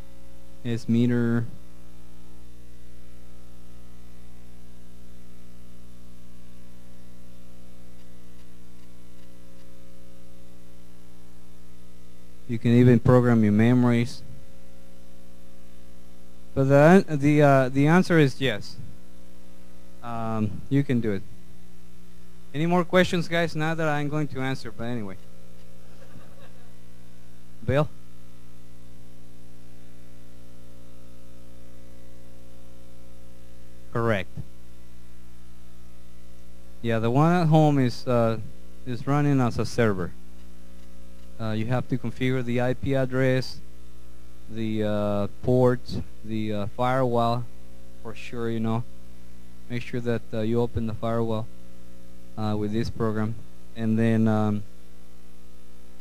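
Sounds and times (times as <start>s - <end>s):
constant hiss: 0.0s - 56.0s
electrical mains hum: 0.0s - 56.0s.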